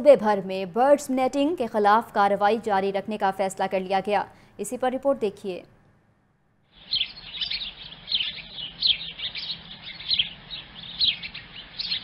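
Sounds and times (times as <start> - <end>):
flock of small birds chirping: 6.7 - 12.0.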